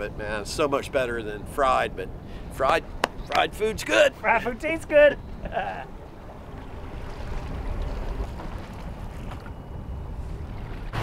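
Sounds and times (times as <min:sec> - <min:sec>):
waves washing and lapping: 0:00.0 - 0:11.0
wind rumbling on microphone: 0:05.2 - 0:11.0.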